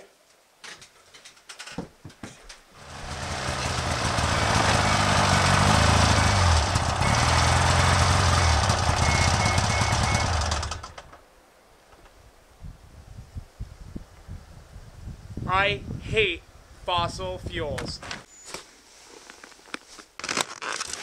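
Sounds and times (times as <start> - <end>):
snowmobile engine running: 2.8 - 10.9.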